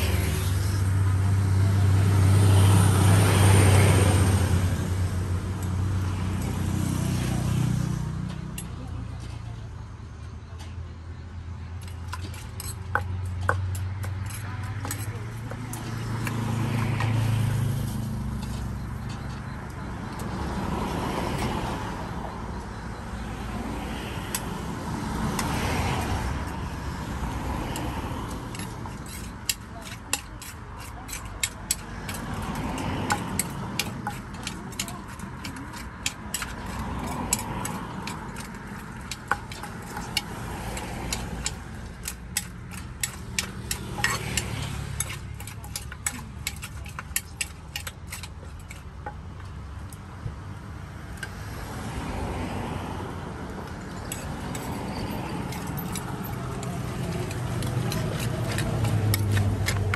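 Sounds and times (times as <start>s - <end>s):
kitchen utensils clicking and knocking: 28.5s - 49.4s, 53.9s - 59.9s.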